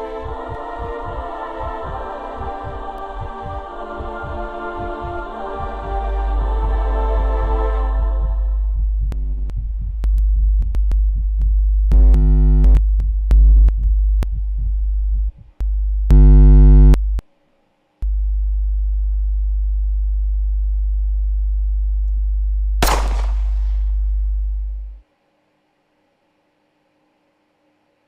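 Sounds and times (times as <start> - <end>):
steady low hum: 0.0 - 25.4
deep electronic drone: 8.3 - 17.2
loud buzzing synth tones: 16.1 - 17.0
sharp crack: 22.8 - 24.0.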